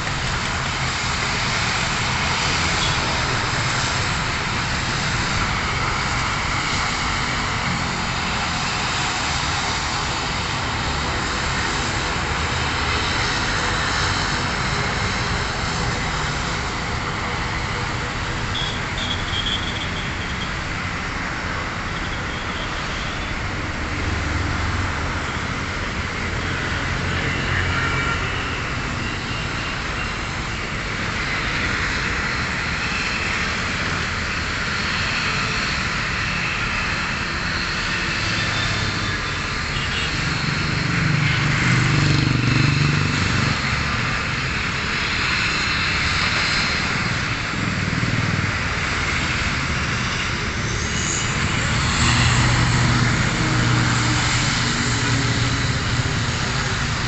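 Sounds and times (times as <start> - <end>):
airliner engines rushing: 0.0 - 57.0.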